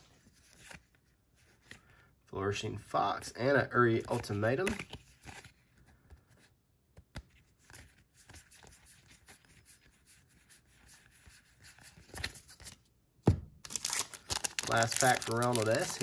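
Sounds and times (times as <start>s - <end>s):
trading cards rustling: 3.7s - 10.0s, 11.1s - 12.8s, 13.6s - 16.0s.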